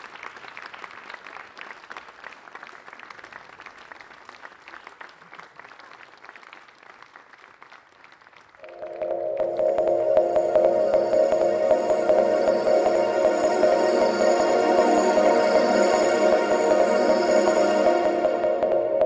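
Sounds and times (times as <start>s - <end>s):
audience applauding: 0.0s - 8.8s
ambient electronic music: 8.6s - 19.0s.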